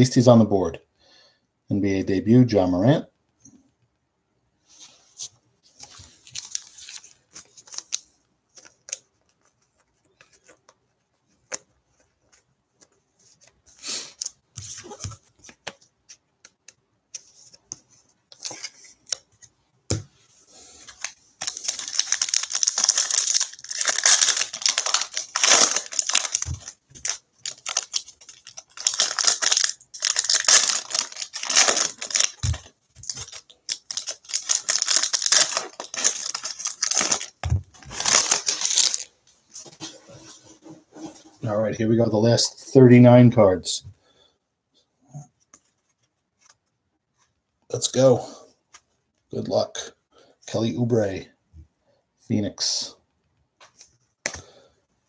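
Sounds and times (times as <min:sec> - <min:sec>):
foil wrapper crinkling: 0:21.0 - 0:39.1.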